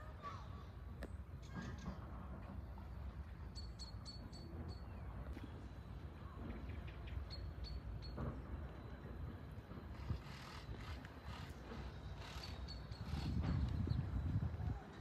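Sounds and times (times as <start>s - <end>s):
wind rumble on microphone: 9.7s - 15.0s.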